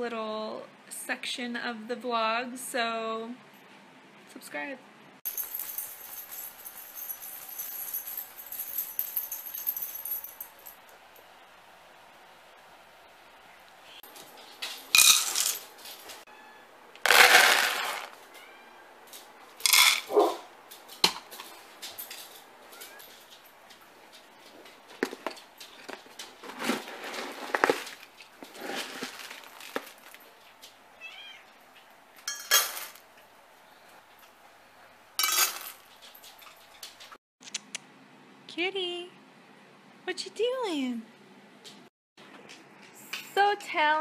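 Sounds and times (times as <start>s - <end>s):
metal bowls clinking: 5.3s - 10.8s, 14.2s - 16.1s, 19.6s - 20.2s, 32.2s - 33.0s, 35.2s - 36.7s
dry pet food rattling into bowls: 14.1s - 16.2s, 17.0s - 18.2s, 19.6s - 20.2s, 20.8s - 30.7s
cat meowing: 16.3s - 16.7s, 18.3s - 19.0s, 31.0s - 31.5s.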